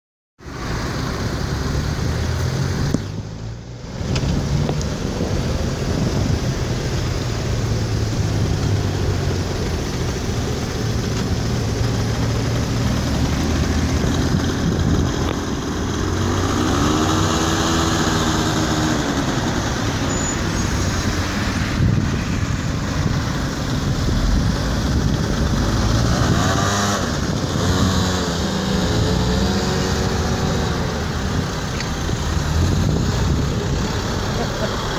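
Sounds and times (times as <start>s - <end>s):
scooter engine revving: 7.6s - 21.2s, 23.0s - 34.9s.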